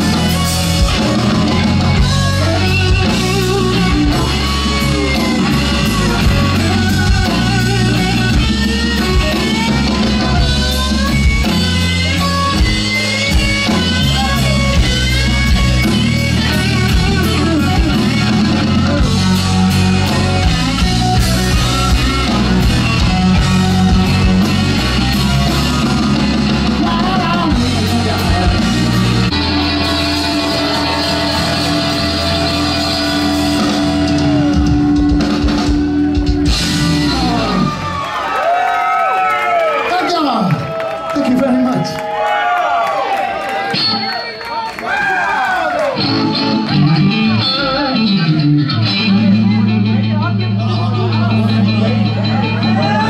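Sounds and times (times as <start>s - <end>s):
drum kit: 0.0s - 38.6s
bass guitar: 0.0s - 39.0s, 45.4s - 53.0s
electric guitar lead: 0.0s - 39.0s, 45.7s - 53.0s.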